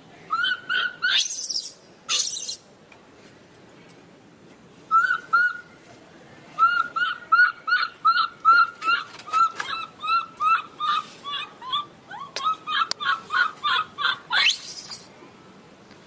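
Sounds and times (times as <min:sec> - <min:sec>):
baby monkey crying: 0:00.3 - 0:02.6, 0:06.6 - 0:15.1.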